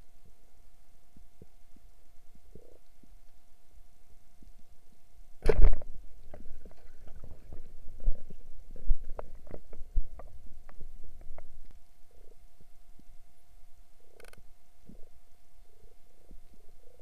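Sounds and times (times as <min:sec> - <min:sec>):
faint steady hum: 0:00.0 - 0:17.0
underwater rushing thump: 0:05.4 - 0:05.9.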